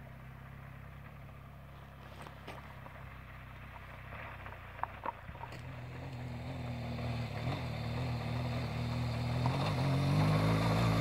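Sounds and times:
motorcycle engine: 0:00.0 - 0:11.0.

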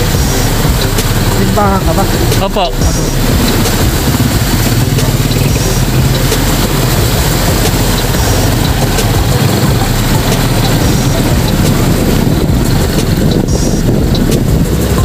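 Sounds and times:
motorcycle engine running: 0:00.0 - 0:15.0
rush of water: 0:00.0 - 0:15.0.

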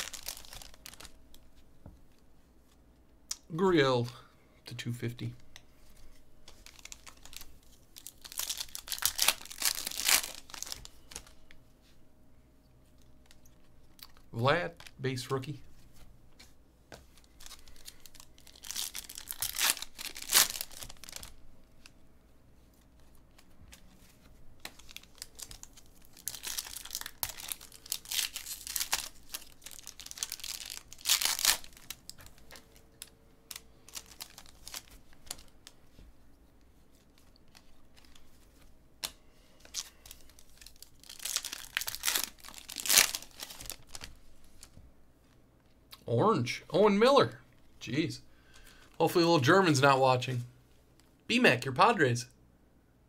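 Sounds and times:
foil packs ripping and rustling: 0:00.0 - 0:01.1, 0:06.6 - 0:11.3, 0:17.3 - 0:21.4, 0:24.6 - 0:32.4, 0:33.0 - 0:35.4, 0:39.6 - 0:44.2.

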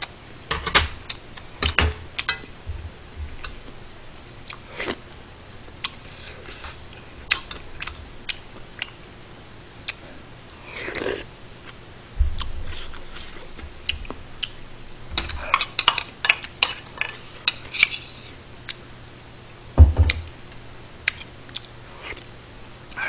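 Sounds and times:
dull knocks: 0:19.8 - 0:20.3.

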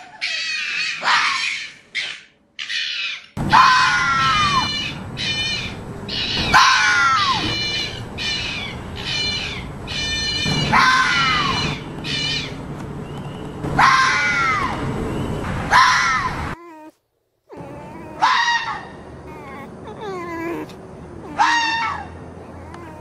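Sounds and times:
fox screaming call: 0:00.0 - 0:12.6, 0:13.8 - 0:14.8, 0:17.5 - 0:23.0.

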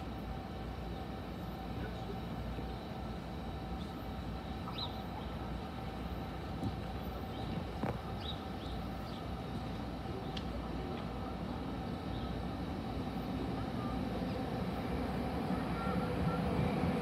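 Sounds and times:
train rumbling: 0:00.0 - 0:17.0
bird chirps: 0:04.6 - 0:05.0.

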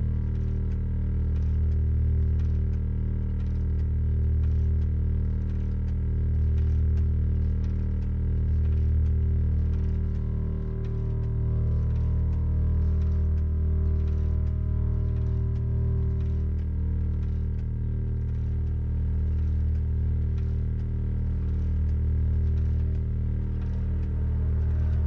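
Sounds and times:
faint clicks and ticks: 0:00.0 - 0:25.0
low droning hum: 0:00.0 - 0:25.0.

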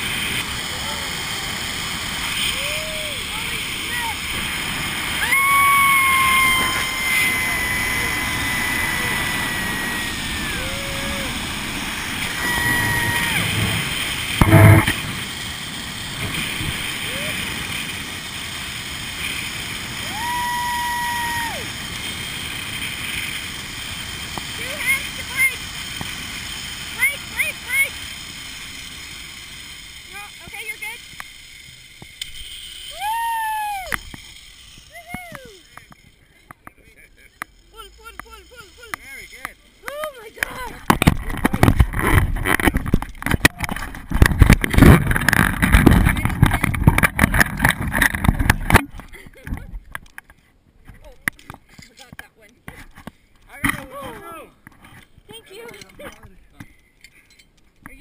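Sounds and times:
wind rushing over microphone: 0:00.0 - 0:28.7, 0:40.8 - 0:49.0
zipline trolley running on cable: 0:00.0 - 0:50.2
wind rushing: 0:03.7 - 0:17.7
camera knocks and rubbing: 0:14.4 - 0:15.0, 0:40.8 - 0:49.6
high tone: 0:14.4 - 0:15.0.

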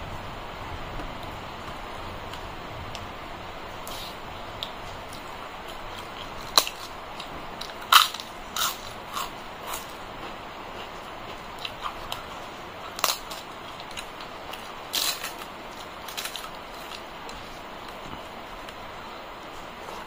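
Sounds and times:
crisp papad crunching: 0:03.8 - 0:18.8.

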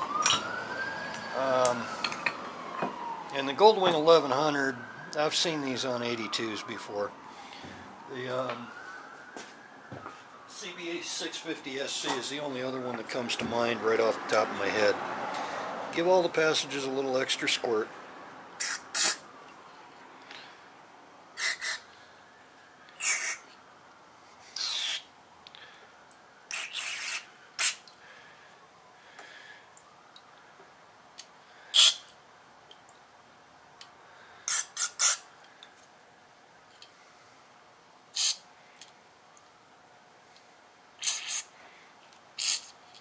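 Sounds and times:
short aerosol spray hisses: 0:41.0 - 0:41.5.

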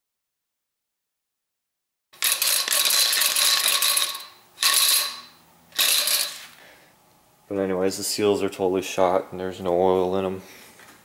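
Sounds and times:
fork internals clattering: 0:02.2 - 0:06.6.

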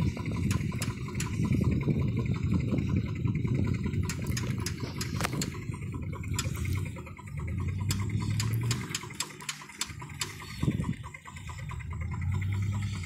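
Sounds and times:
old engines rumbling: 0:00.0 - 0:13.0.

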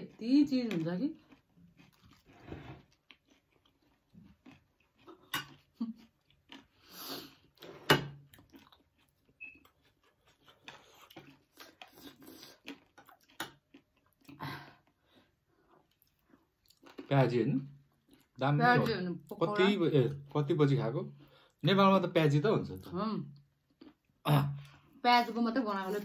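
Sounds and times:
close chewing and eating: 0:00.0 - 0:26.0.

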